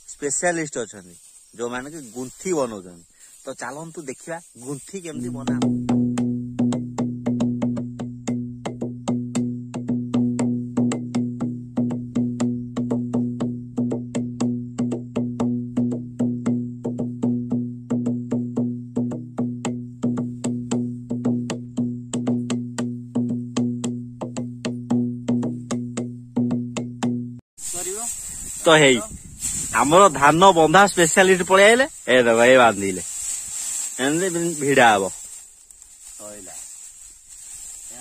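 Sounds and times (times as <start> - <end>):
wood block percussion beat: 4.0 - 29.1, 29.8 - 33.1.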